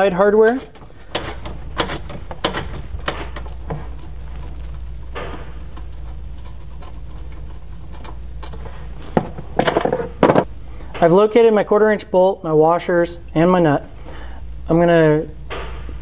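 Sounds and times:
metal scrape: 0:00.0 - 0:09.2
steady low hum: 0:00.0 - 0:16.0.

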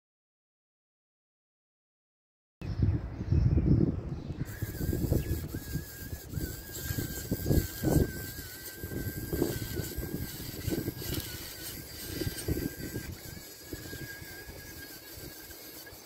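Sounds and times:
robot motor whine: 0:04.4 - 0:16.0.

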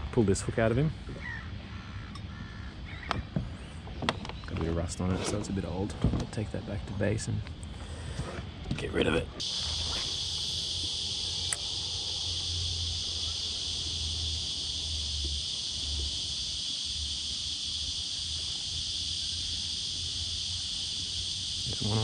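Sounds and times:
high-pitched insect buzz: 0:09.4 - 0:22.0.

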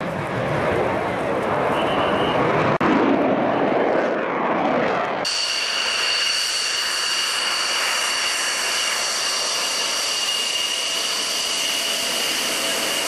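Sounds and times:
jet engine high-pitched whine: 0:00.0 - 0:13.0
jet roaring overhead: 0:00.0 - 0:13.0
piercing whistle tones: 0:05.3 - 0:13.0.

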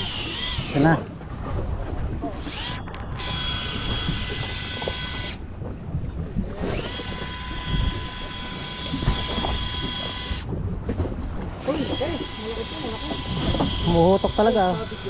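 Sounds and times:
electric fishing reel motor whine: 0:00.0 - 0:01.0, 0:02.4 - 0:05.4, 0:06.5 - 0:10.5, 0:11.6 - 0:15.0.

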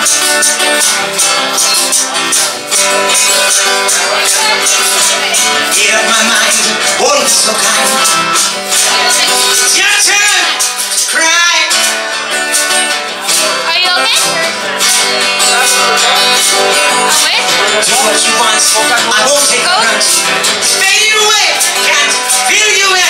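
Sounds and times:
acoustic guitar music: 0:00.0 - 0:23.0.

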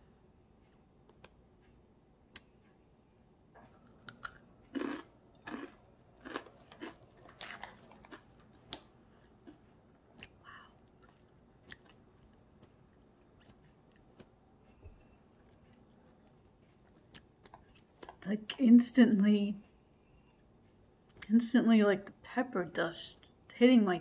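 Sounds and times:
chip crunching: 0:03.8 - 0:14.3.

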